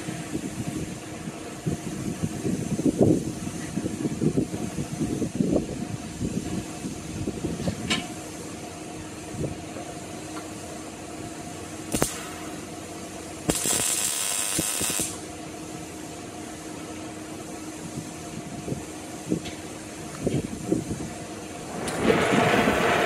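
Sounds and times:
steady shop hum: 0.0s - 23.0s
welding hissing burst: 11.8s - 15.3s, 21.6s - 23.0s.

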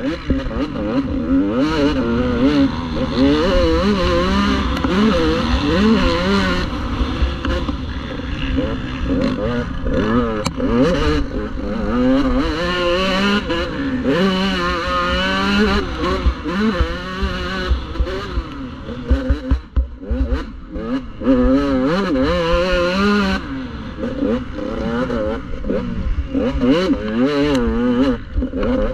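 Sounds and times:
dirt bike engine revving: 0.0s - 28.9s
sharp knocks and clatters: 16.1s - 20.4s.

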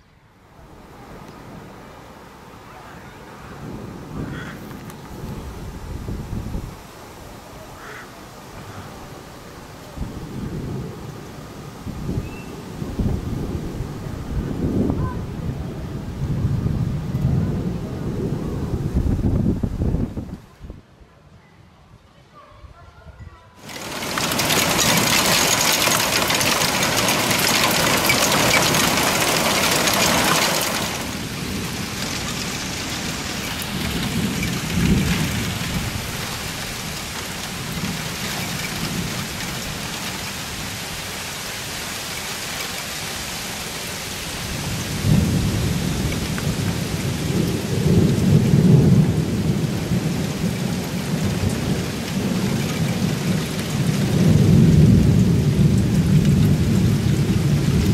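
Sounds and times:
heavy rain pouring: 0.5s - 20.3s, 23.6s - 57.9s
low thunder rumbling: 10.0s - 20.4s, 23.6s - 40.7s, 44.4s - 57.9s.

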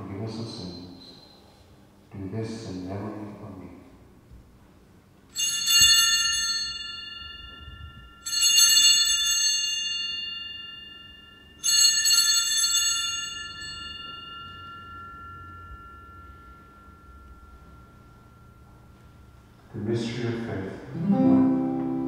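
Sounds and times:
altar bell ringing: 5.3s - 22.0s.

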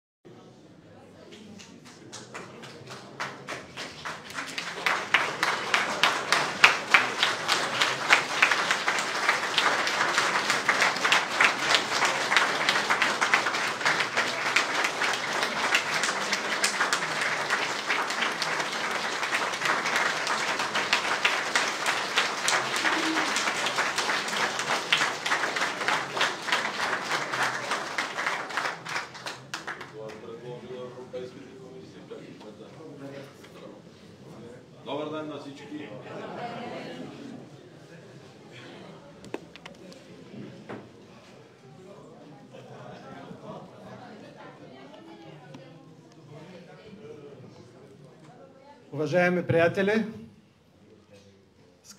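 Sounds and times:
crowd applauding: 1.8s - 30.5s.

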